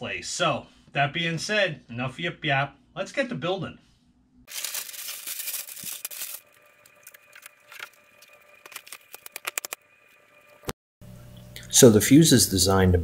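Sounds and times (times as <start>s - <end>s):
paper rustling and crinkling: 4.5s - 9.8s.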